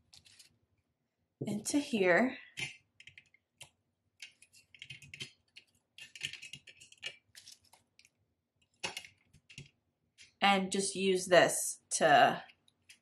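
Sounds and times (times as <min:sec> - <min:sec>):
plastic binder pocket crinkling: 0:00.1 - 0:00.6, 0:04.2 - 0:09.8.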